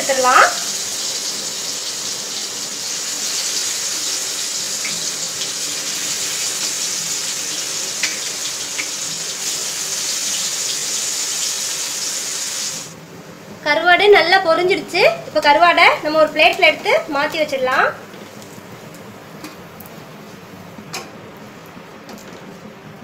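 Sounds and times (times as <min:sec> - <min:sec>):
fish frying in oil: 0:00.1 - 0:12.9.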